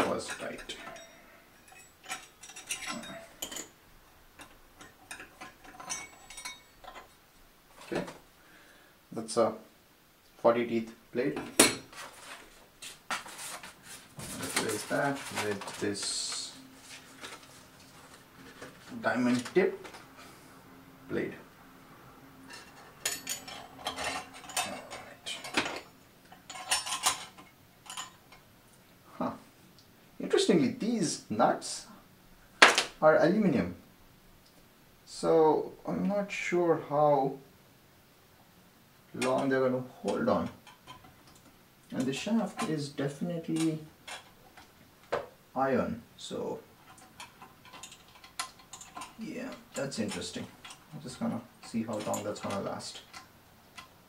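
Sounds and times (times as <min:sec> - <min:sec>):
small metal parts clinking: 0:00.2 - 0:03.8, 0:04.4 - 0:07.2, 0:22.5 - 0:28.4, 0:46.8 - 0:54.0.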